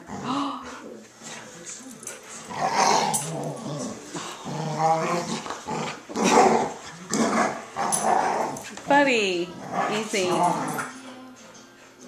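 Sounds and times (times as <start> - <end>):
dogs growling: 0.0 - 12.0.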